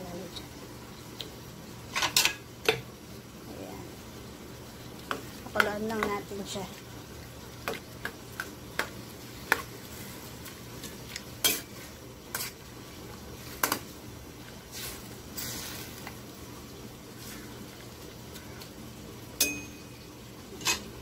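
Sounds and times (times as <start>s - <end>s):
sauce simmering: 0.1s - 19.4s, 20.0s - 21.0s
metal spatula scraping a wok: 11.4s - 12.6s.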